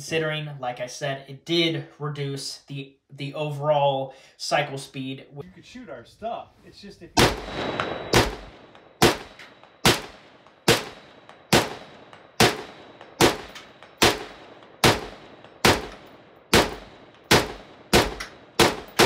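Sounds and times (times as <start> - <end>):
pistol gunshots echoing: 7.2 - 19.0.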